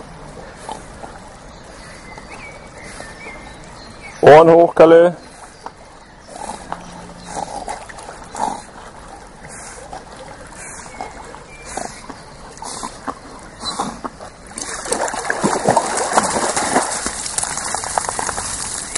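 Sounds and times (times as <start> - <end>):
dog paddling and splashing: 5.2 - 18.9.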